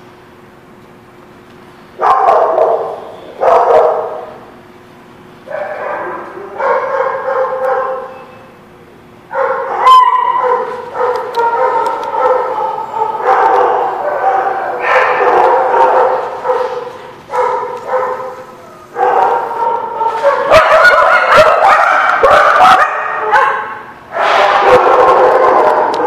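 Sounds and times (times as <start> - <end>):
small dogs barking and yipping: 5.5 - 8.3, 9.3 - 26.0.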